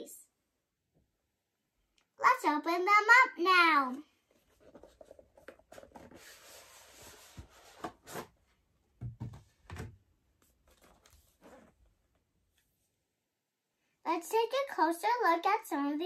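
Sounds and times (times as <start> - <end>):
cardboard rustling and scraping: 4.3 - 8.5, 9.2 - 12.0.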